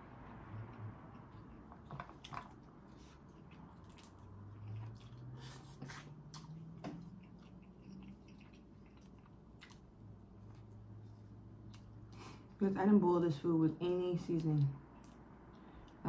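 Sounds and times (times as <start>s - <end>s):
faint low hum: 0.0s - 16.0s
lip smacks: 3.5s - 9.9s.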